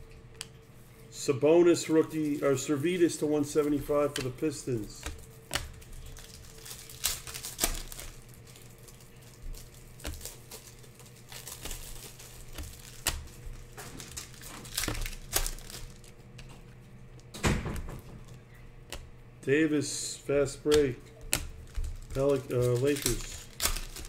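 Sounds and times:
faint steady hum: 0.0s - 24.0s
trading cards flipped by hand: 3.5s - 17.3s, 20.6s - 24.0s.

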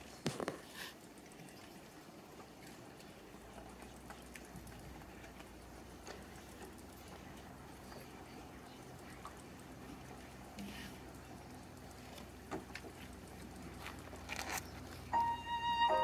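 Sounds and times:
low hum: 10.9s - 16.0s.

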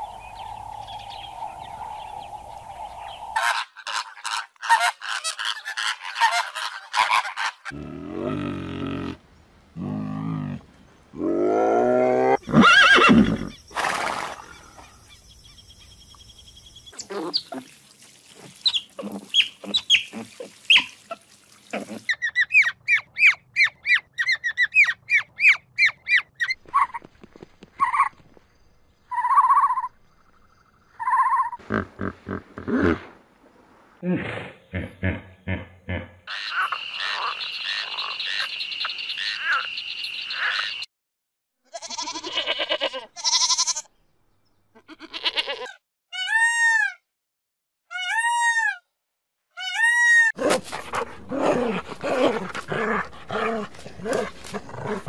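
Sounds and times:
long multi-pitched animal calls: 29.1s - 29.9s, 30.9s - 32.7s.

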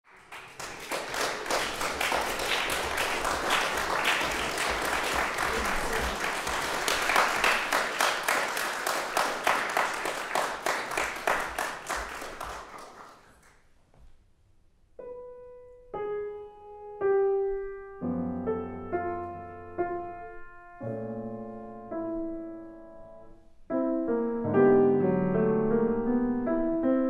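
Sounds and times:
audience applauding: 0.0s - 13.6s.

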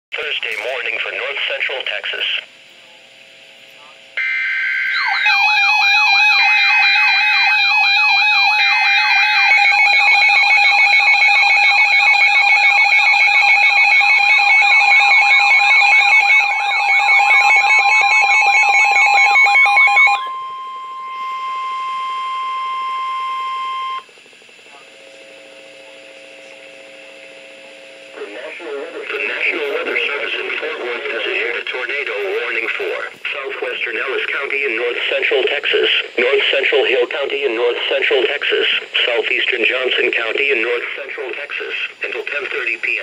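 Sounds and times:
steady warning tone: 0.1s - 43.0s
fast-warbling radio alarm: 4.2s - 24.1s, 28.2s - 43.0s
rasping data tone bursts: 4.2s - 24.1s.

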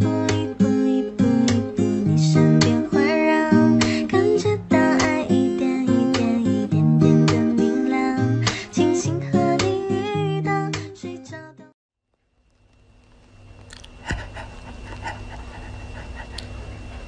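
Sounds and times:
strummed guitar music: 0.0s - 11.6s.

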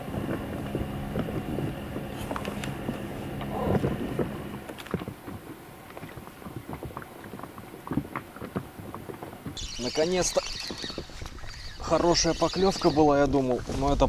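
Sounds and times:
outboard motor humming: 0.0s - 13.1s
water around boat: 0.0s - 14.0s
wind: 0.0s - 14.0s.

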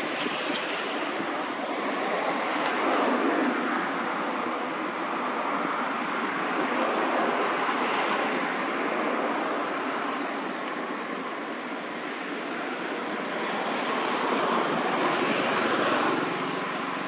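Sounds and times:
rushing outdoor background noise: 0.0s - 17.0s.

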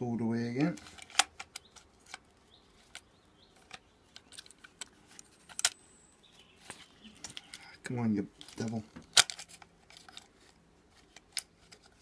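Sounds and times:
small items clicking and rattling: 0.6s - 5.8s, 8.4s - 12.0s.

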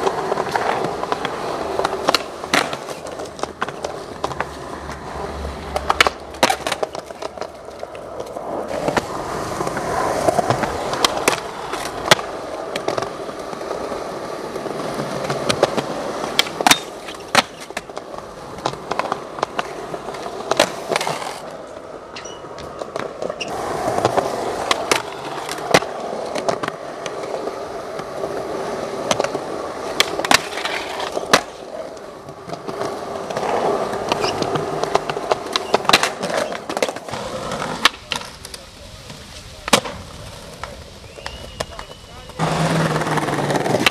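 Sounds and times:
skateboard clacks landing: 0.0s - 4.5s, 5.7s - 13.6s, 15.0s - 21.4s, 29.0s - 38.6s, 39.6s - 41.9s, 42.8s - 43.9s
skateboard wheels rumbling: 0.0s - 43.9s.

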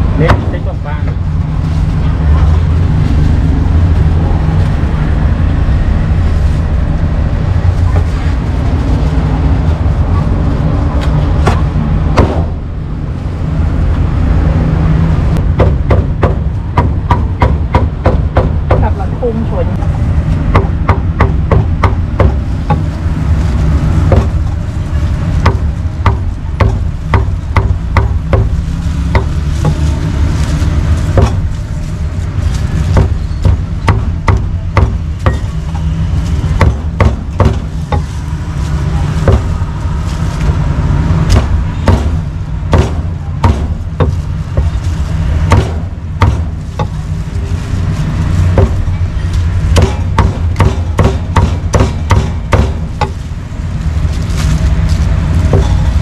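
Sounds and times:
low rumble: 0.0s - 56.0s
cleaver chopping meat on block: 49.8s - 52.8s.

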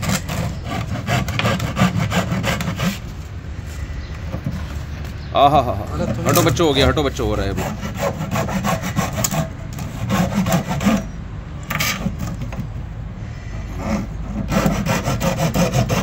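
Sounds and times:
hand saw rasping through plastic: 0.0s - 3.1s, 7.5s - 11.1s, 11.7s - 12.7s, 13.6s - 16.0s.

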